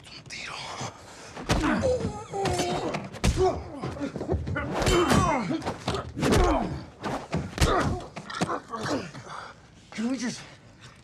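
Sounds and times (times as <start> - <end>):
fighters grunting and crying: 1.4 - 9.6.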